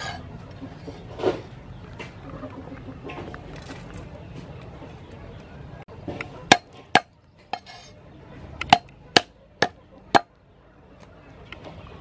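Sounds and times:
cleaver chopping on wooden board: 6.5s - 7.7s, 8.6s - 10.3s.

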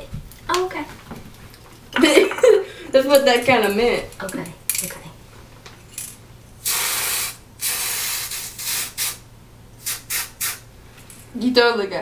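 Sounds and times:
aerosol spray hissing: 6.6s - 9.2s, 9.8s - 10.7s.

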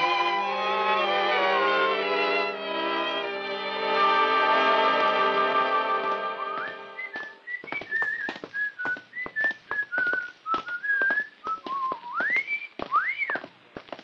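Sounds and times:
person whistling a tune: 6.5s - 13.4s.

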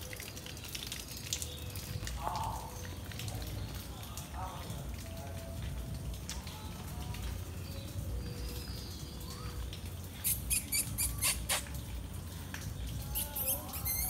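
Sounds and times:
squirrel high chirps: 10.2s - 11.8s, 13.0s - 14.0s.

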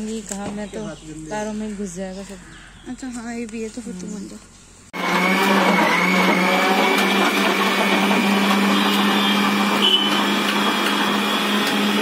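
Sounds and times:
blender whirring: 5.0s - 12.0s.

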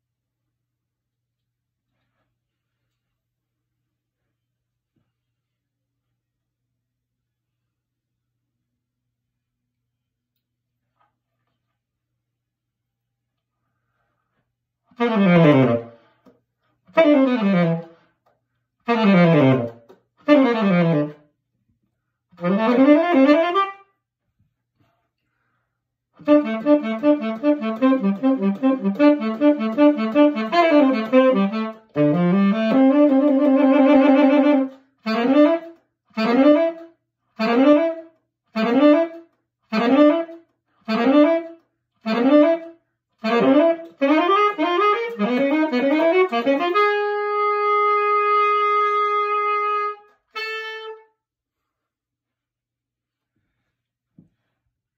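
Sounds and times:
solo tenor saxophone: 14.9s - 16.3s, 16.9s - 18.2s, 18.8s - 21.3s, 22.4s - 24.0s, 26.2s - 51.3s.

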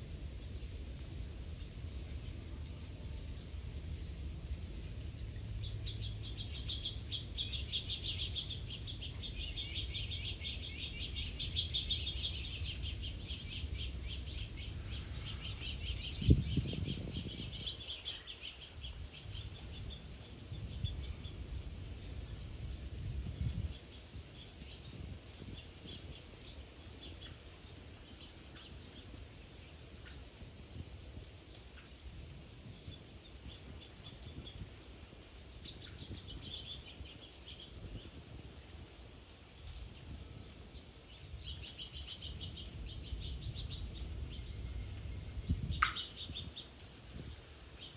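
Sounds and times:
songbirds chirping: 0.4s - 47.9s.

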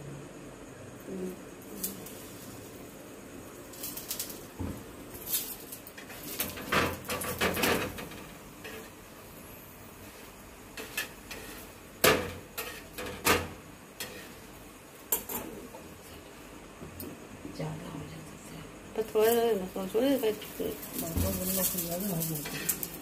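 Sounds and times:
metal spatula scraping griddle: 5.2s - 9.1s, 10.0s - 14.6s, 20.2s - 23.0s.

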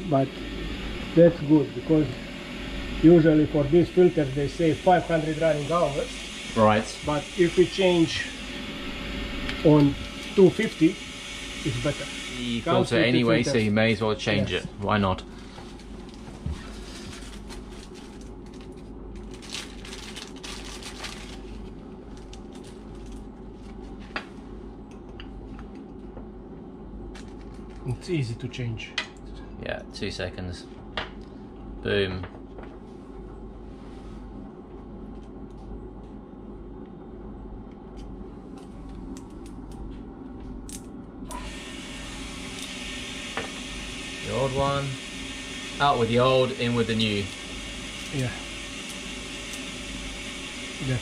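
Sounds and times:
steady hiss: 0.0s - 15.5s, 41.3s - 51.0s
steady low hum: 0.0s - 51.0s
plastic wrapping rustling: 15.4s - 24.0s.

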